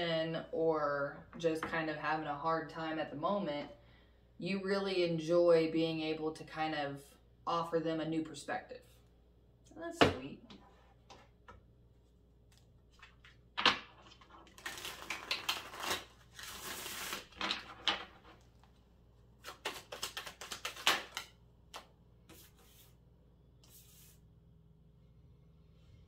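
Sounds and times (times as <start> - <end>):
cards shuffling rustling and clicking: 12.5 - 18.8, 19.4 - 22.9.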